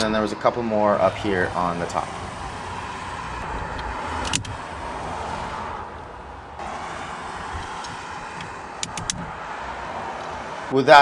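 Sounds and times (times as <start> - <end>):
sharp click: 7.7 - 9.3.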